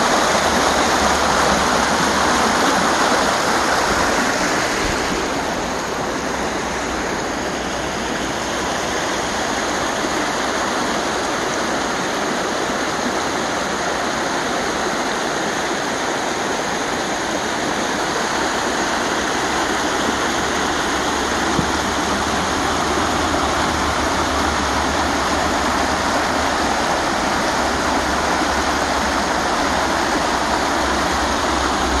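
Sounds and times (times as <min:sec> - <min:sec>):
creek rushing over rocks: 0:00.0 - 0:32.0.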